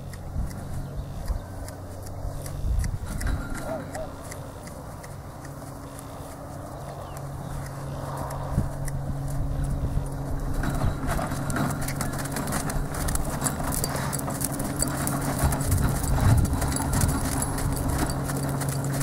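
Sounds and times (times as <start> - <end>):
horse hoofbeats on sand: 0.0 - 19.0
low steady hum: 0.0 - 19.0
tack jingling: 12.0 - 19.0.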